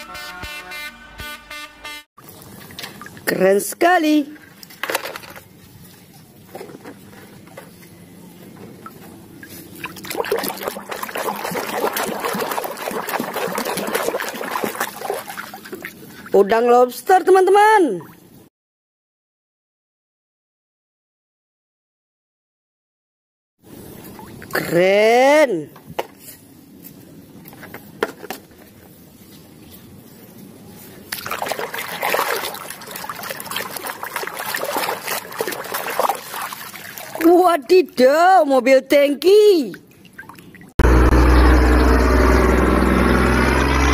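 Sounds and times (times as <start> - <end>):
water splashing in plastic tub: 8.6 - 16.4, 31.1 - 37.7, 39.7 - 40.7.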